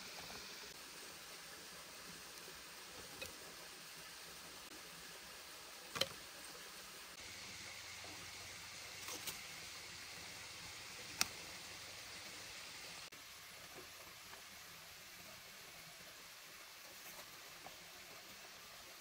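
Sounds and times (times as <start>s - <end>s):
faint steady hiss: 0.0s - 19.0s
wooden spoon and bamboo clicks: 5.9s - 6.2s.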